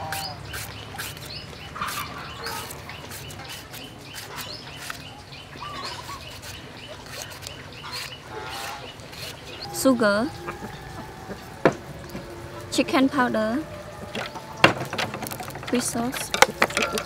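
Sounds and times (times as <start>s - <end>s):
knife slicing mango: 0.0s - 5.2s, 5.8s - 9.6s
birds chirping: 0.0s - 17.0s.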